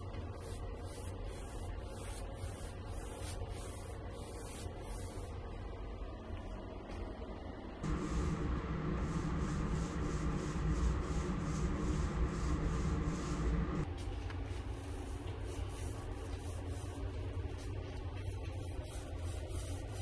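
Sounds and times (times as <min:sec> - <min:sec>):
steady low hum: 0:00.0 - 0:20.0
paint roller rolling on wood: 0:07.8 - 0:13.9.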